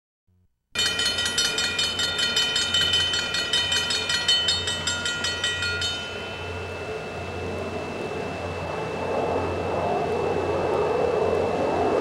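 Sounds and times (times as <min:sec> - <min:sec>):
railroad crossing bell ringing: 0:00.8 - 0:09.1.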